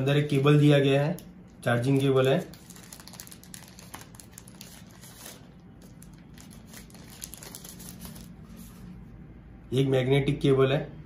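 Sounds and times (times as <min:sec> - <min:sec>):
plastic wrapper crinkling: 0:01.2 - 0:08.8.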